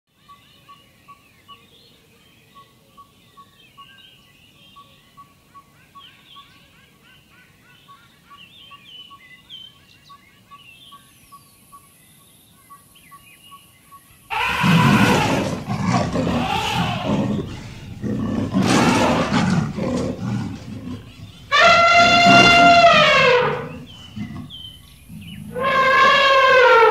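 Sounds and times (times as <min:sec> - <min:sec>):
small birds chirping: 0:00.2 - 0:26.9
animal roars and rumbling calls: 0:14.3 - 0:26.9
elephant trumpeting: 0:14.3 - 0:26.9.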